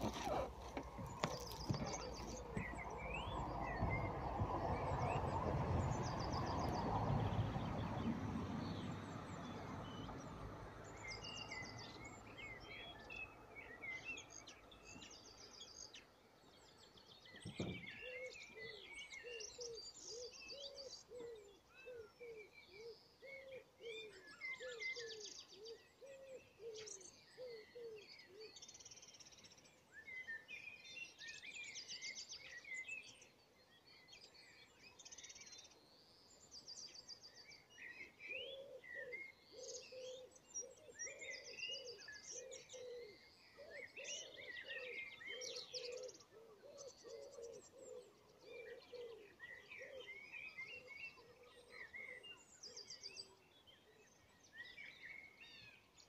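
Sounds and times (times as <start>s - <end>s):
brief low thump: 0.0s - 4.8s, 17.4s - 18.0s
songbirds singing: 0.0s - 56.0s.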